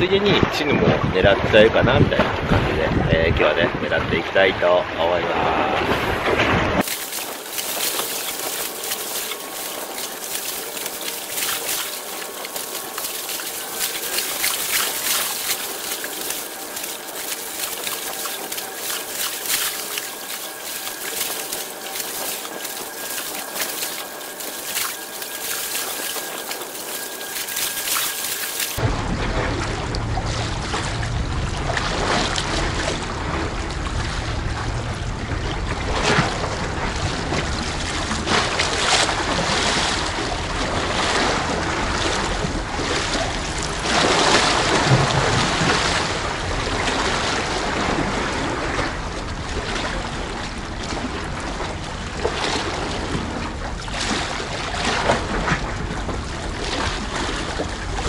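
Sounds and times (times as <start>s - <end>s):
wind rumbling on microphone: 0.0s - 4.5s
sea waves washing against breakwater: 4.3s - 29.8s.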